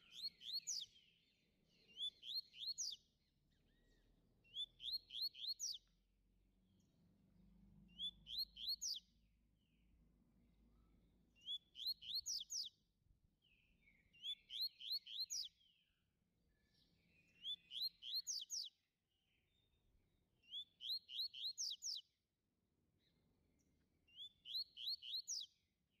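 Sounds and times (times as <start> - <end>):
bird singing whistled notes: 0.0 - 5.9, 7.9 - 9.2, 11.4 - 12.8, 13.4 - 19.8, 20.4 - 22.1, 24.1 - 25.6.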